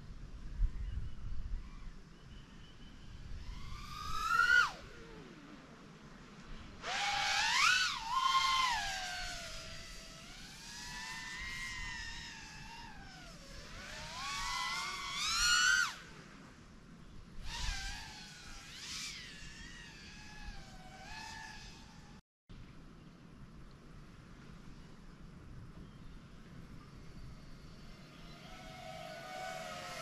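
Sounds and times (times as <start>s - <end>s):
drone motors whining: 3.3s - 5.8s, 6.8s - 16.2s, 17.4s - 22.2s, 26.9s - 30.0s.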